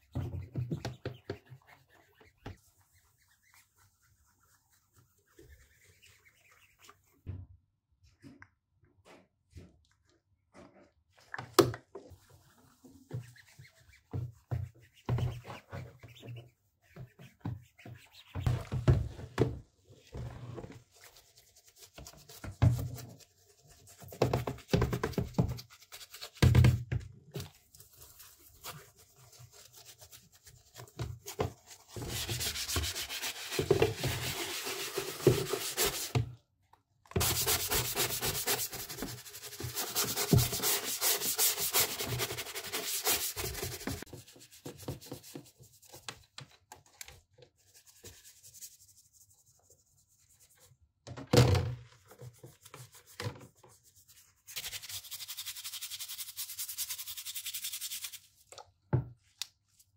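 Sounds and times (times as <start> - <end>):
sponge and brush scrubbing plastic: 0.0 - 7.3, 12.1 - 36.4, 37.1 - 46.1, 51.9 - 58.6.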